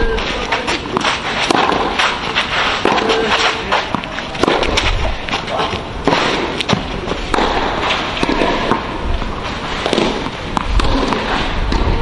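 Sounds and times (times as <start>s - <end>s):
tennis ball bouncing on clay: 0.5s - 8.9s
tennis ball hit by rackets: 0.6s - 8.9s, 9.8s - 12.0s.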